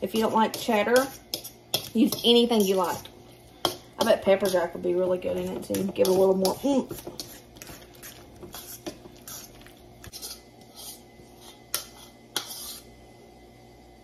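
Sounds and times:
fork scraping in a bowl: 0.1 - 4.8, 5.4 - 13.0
spoon scooping food: 5.4 - 12.9.

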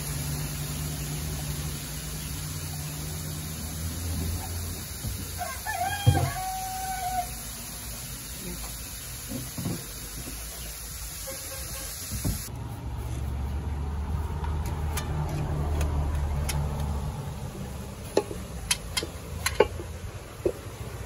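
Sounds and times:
vehicle engine rumble passing: 12.4 - 21.0.

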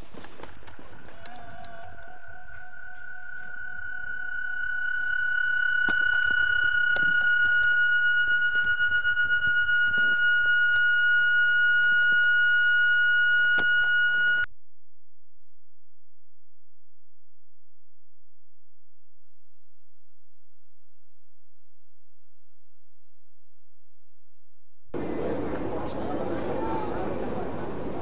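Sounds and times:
high-pitched whistle-like tone: 2.1 - 14.5.

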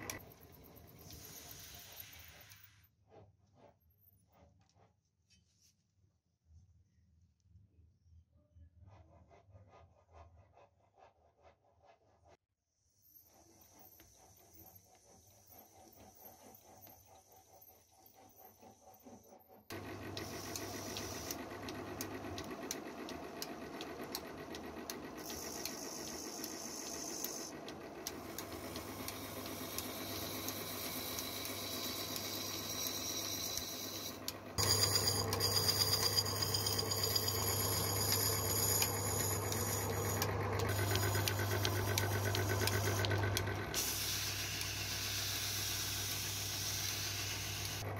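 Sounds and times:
workshop machine humming and rattling: 0.0 - 2.2, 14.3 - 47.9.

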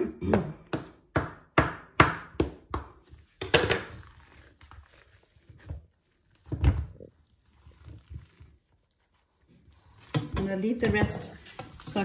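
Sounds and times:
knife scraping bowl: 7.4 - 12.0.

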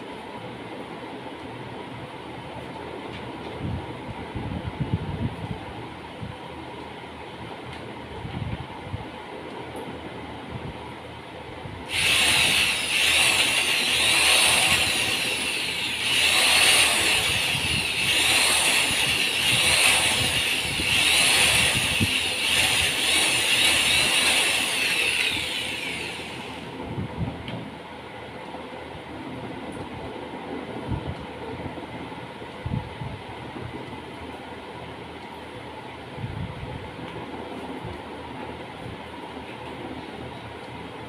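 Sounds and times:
generator rig running: 9.9 - 30.1
electric drill running: 11.9 - 26.8.

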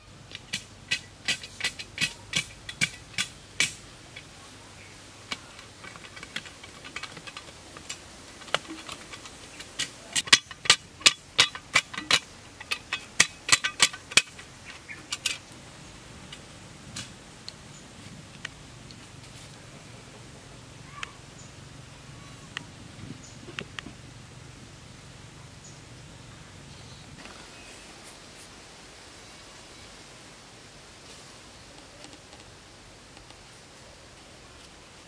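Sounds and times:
hand tool chopping into soil: 0.4 - 3.8.

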